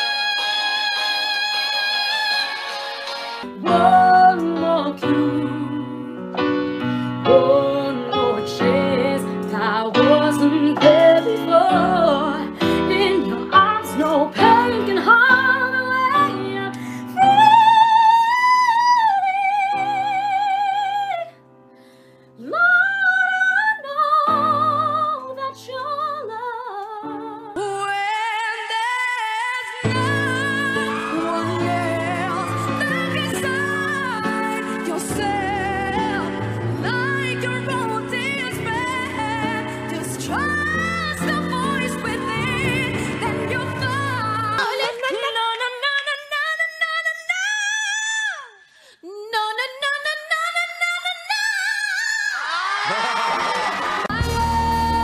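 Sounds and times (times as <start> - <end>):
woman singing: 0.0 - 2.8, 3.4 - 21.4, 22.3 - 52.6, 54.0 - 55.0
keyboard accompaniment: 0.0 - 22.4, 23.9 - 44.7
another woman singing: 3.6 - 6.3, 7.2 - 21.3, 22.4 - 52.4.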